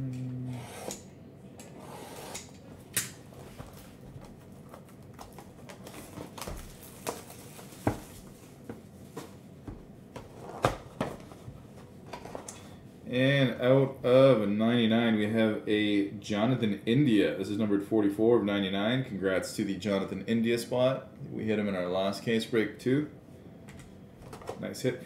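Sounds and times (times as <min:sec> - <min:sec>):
plastic wrap crinkling: 0:03.5 - 0:08.6.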